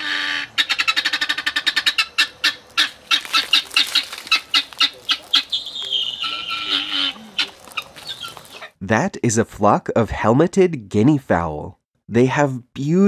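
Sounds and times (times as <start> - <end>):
guineafowl calling: 0.0 - 8.8.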